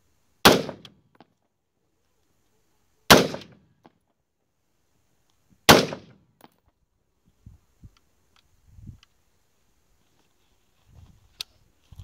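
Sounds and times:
rifle shot: 0.4s - 1.0s, 3.1s - 3.6s, 5.7s - 6.2s.

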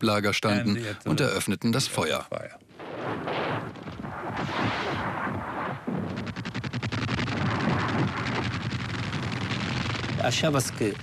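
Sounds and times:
artillery firing: 2.8s - 10.9s.

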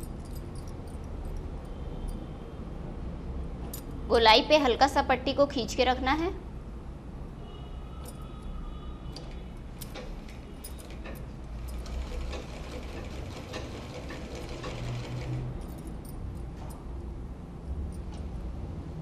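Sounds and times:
sewing machine running: 11.6s - 15.6s.

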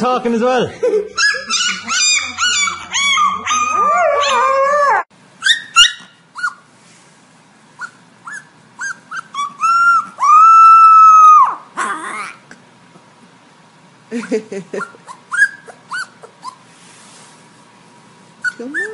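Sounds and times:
dog vocalizing: 1.2s - 4.5s
puppy howling: 1.2s - 6.5s, 7.8s - 12.4s
puppy yipping and whimpering: 1.2s - 6.7s, 7.8s - 12.4s, 14.8s - 16.6s, 18.4s - 18.9s.

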